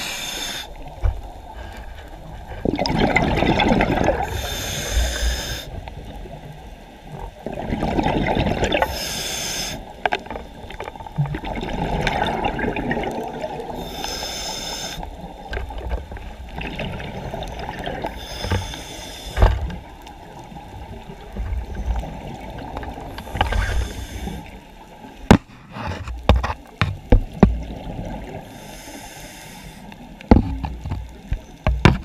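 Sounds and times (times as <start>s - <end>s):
muffled water sounds: 0.0s - 32.0s
short hiss: 8.9s - 9.9s, 18.2s - 19.5s.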